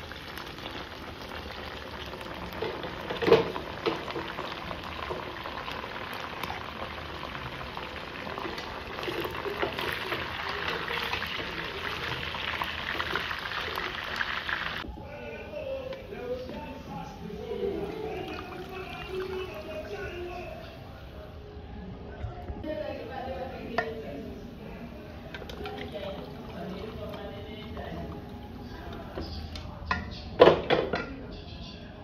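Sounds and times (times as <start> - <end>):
pork sizzling in fat: 0.0 - 14.8.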